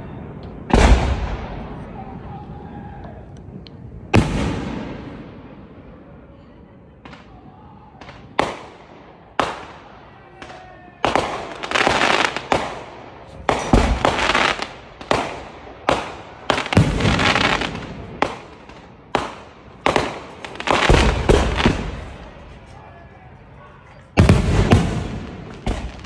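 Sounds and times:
fireworks bursting: 7.0s - 26.0s.

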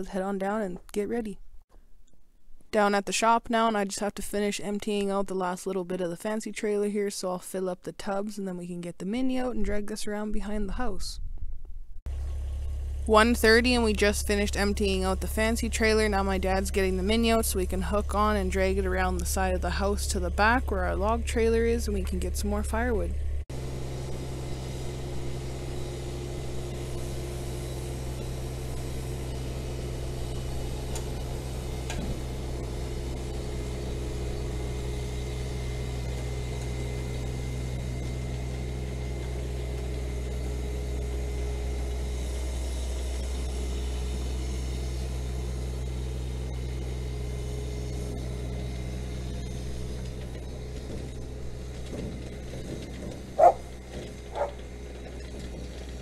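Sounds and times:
small machine engine humming: 12.1s - 56.0s.

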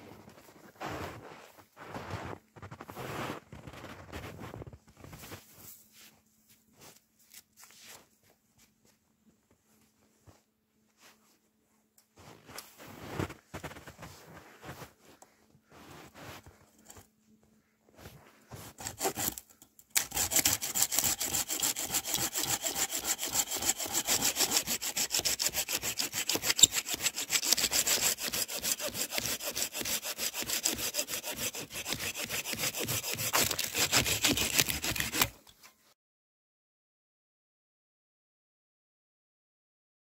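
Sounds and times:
faint scrapes and knocks: 0.0s - 19.7s
hand saw cutting a log: 18.7s - 35.4s.

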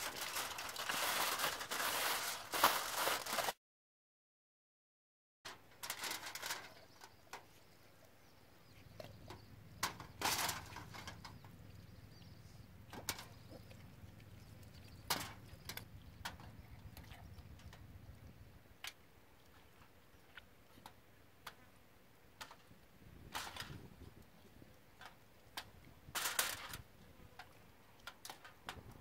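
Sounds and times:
aluminium foil crinkling: 0.0s - 3.6s, 5.5s - 7.2s, 26.1s - 26.8s
low steady hum: 5.8s - 29.0s.

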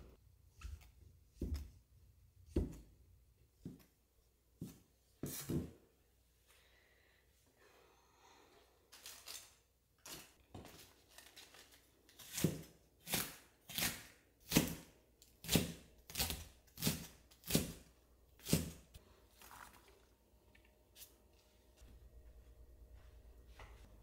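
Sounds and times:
knife slicing cabbage on a board: 12.2s - 18.8s.

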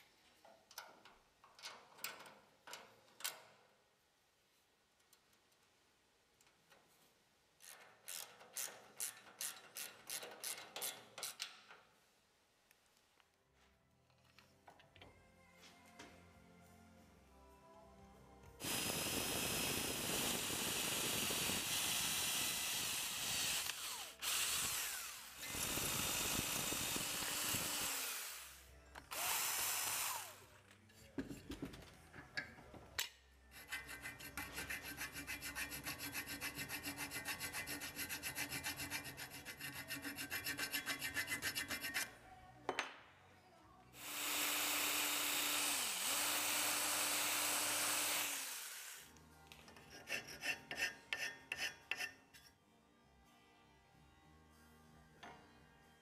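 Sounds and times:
electric drill boring into metal: 18.6s - 30.4s, 44.0s - 49.1s.

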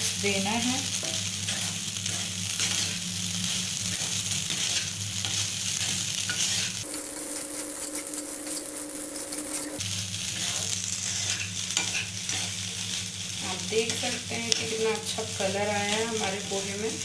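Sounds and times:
light sizzle: 0.0s - 17.0s
spatula stirring in frying pan: 0.9s - 16.7s
steady low hum: 6.8s - 11.0s.

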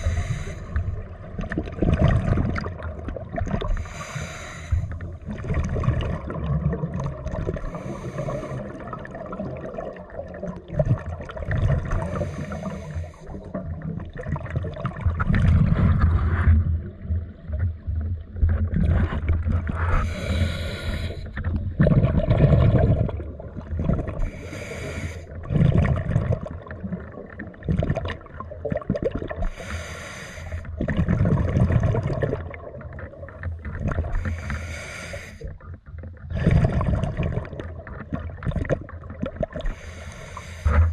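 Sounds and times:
regulator hiss on inhalation: 0.0s - 0.8s, 3.8s - 4.9s, 20.0s - 21.3s, 24.3s - 25.2s, 29.5s - 30.7s, 34.2s - 35.5s, 39.7s - 40.9s
exhaled bubbles rumbling: 0.0s - 29.8s, 30.4s - 40.9s.

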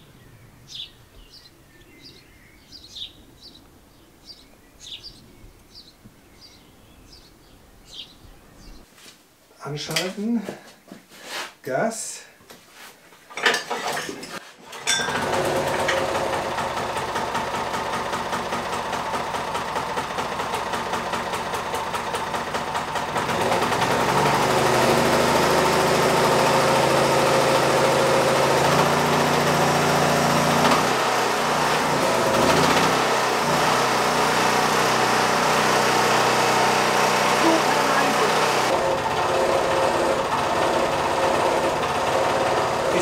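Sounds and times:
lawn aerator engine running: 13.4s - 14.1s, 14.7s - 43.0s.

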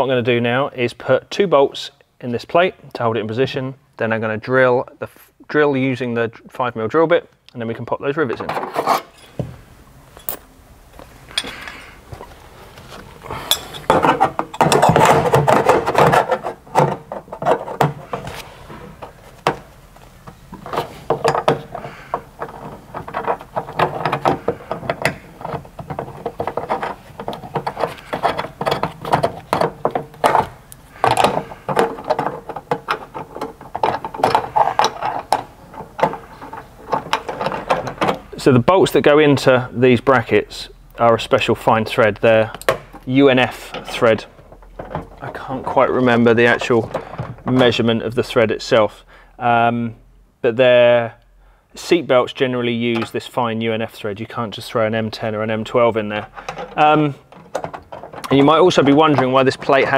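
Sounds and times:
metal clinks taps and scraping: 8.8s - 9.5s, 10.1s - 10.5s, 11.3s - 11.9s, 13.3s - 17.9s, 20.5s - 38.2s.

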